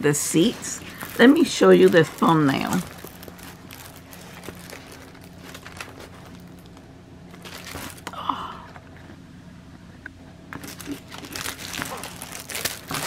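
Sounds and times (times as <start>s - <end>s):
faint steady hum: 0.0s - 13.0s
plastic and paper crinkling: 0.2s - 8.1s, 10.5s - 13.0s.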